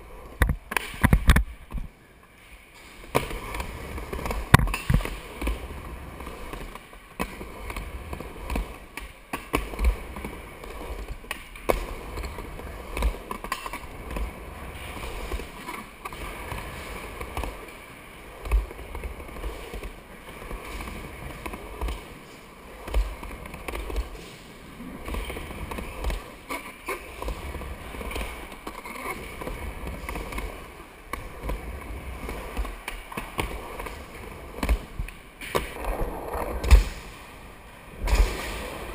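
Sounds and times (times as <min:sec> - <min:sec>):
skateboard wheels rolling on wood: 0:00.0 - 0:38.9
skateboard knocks and clacks: 0:00.2 - 0:01.9, 0:03.1 - 0:24.3.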